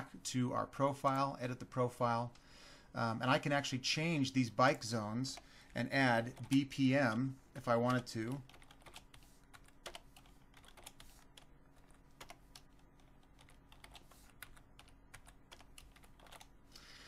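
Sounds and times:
typing on keyboard: 7.8s - 16.5s.

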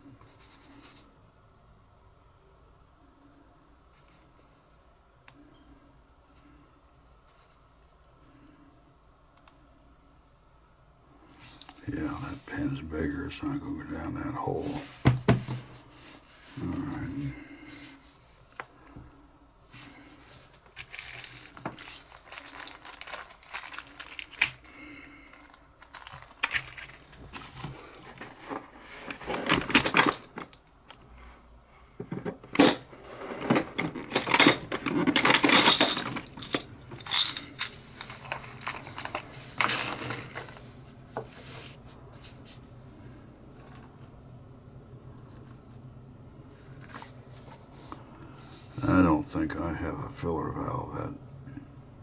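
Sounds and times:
metal tools clicking and scraping: 33.6s - 37.8s.

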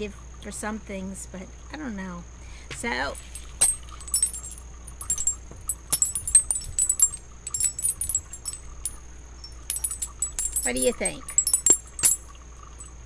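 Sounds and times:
sea glass wind chime clinking: 3.2s - 12.9s.

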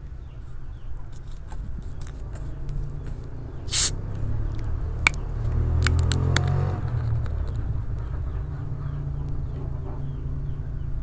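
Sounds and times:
bottle cap clicks: 3.7s - 3.9s
carbonation hissing from bottle: 3.7s - 4.0s.

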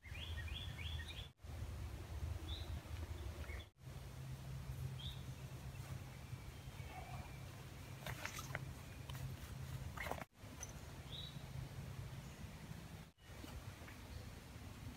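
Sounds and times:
low steady rumble: 1.4s - 14.9s
faint bird chirps: 5.0s - 9.3s.

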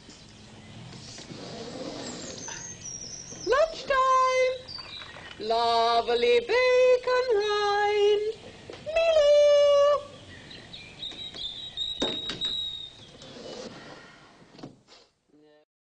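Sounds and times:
high chirps: 2.0s - 6.7s, 9.8s - 13.2s
woman calling in sing-song notes: 5.4s - 10.2s.

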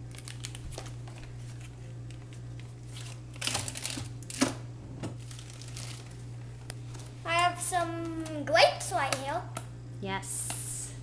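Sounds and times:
steady low hum: 0.0s - 11.0s
plastic container rustling: 5.2s - 6.2s.

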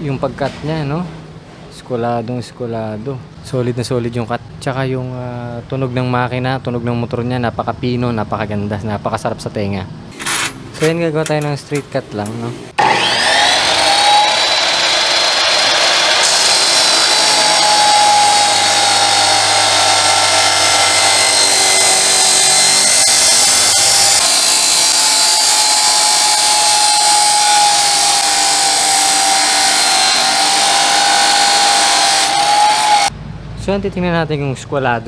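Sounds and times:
abrasive wheel grinding steel: 12.8s - 33.1s
motor whine: 12.8s - 33.1s.

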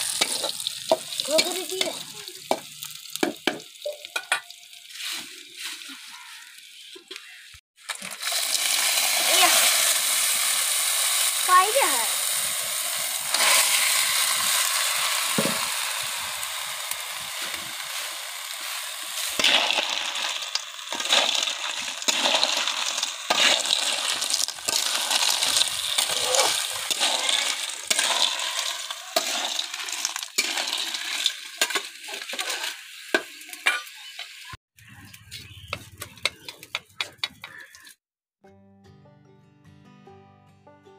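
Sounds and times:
snails sizzling in a pan: 0.0s - 35.0s.

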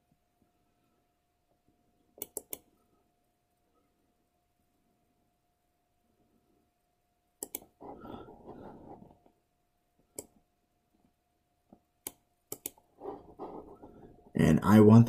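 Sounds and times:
faint steady hum: 0.0s - 15.0s
computer mouse clicks: 2.2s - 2.7s, 7.4s - 7.9s, 10.1s - 10.4s, 11.7s - 13.8s.

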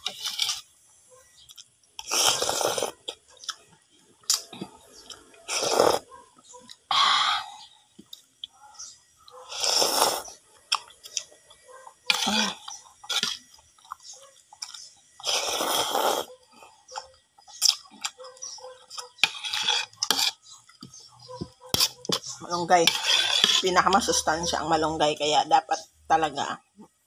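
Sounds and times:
person chewing: 1.4s - 6.9s, 7.9s - 22.4s
person slurping noodles: 2.0s - 3.1s, 5.5s - 6.1s, 9.5s - 10.3s, 15.2s - 16.3s, 22.9s - 23.6s.

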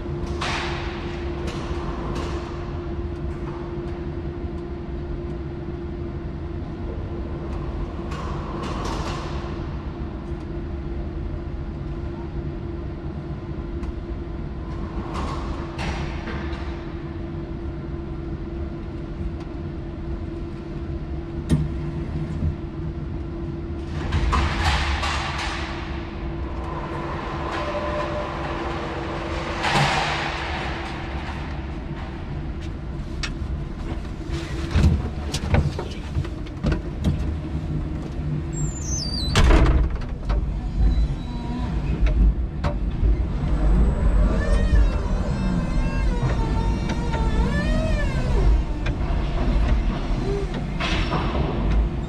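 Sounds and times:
forklift hum: 40.0s - 52.0s.

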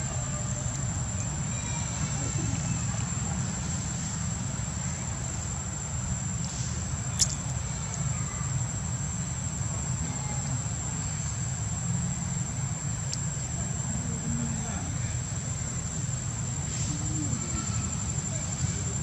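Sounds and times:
high-pitched insect drone: 0.0s - 19.0s.

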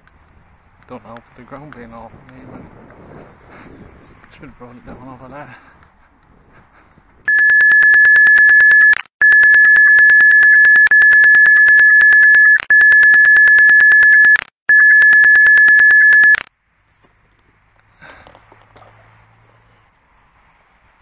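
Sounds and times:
censor bleep tone: 7.3s - 16.4s.

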